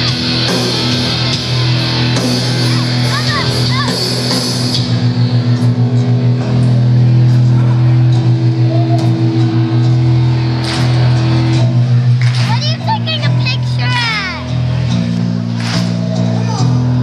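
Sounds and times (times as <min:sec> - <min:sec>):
punk rock band playing: 0:00.0 - 0:17.0
crowd shouting: 0:00.8 - 0:04.3.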